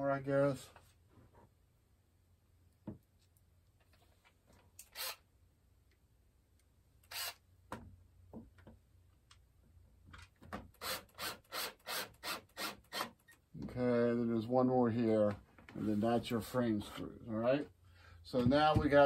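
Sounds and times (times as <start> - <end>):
drill click: 4.8 - 5.2, 7.0 - 7.4
drill rasping strokes: 4.8 - 5.2, 7.0 - 7.4, 10.8 - 13.2.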